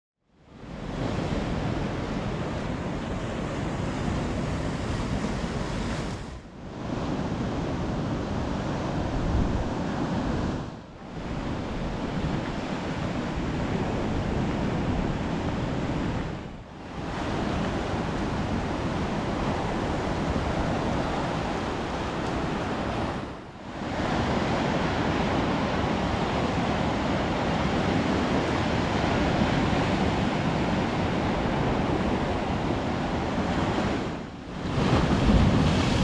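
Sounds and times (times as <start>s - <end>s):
wind buffeting microphone: 0.6s - 36.0s
surf breaking on shore: 8.2s - 36.0s.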